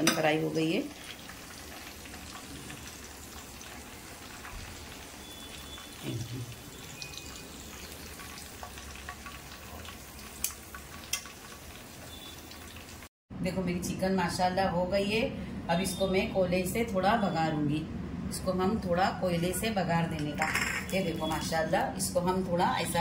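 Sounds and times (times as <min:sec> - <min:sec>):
chicken sizzling in oil: 0:00.0 - 0:13.1.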